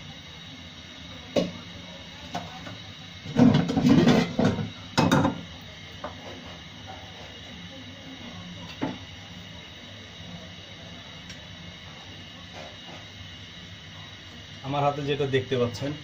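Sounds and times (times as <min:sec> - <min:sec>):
metal cookware clattering: 0:03.3 - 0:05.4.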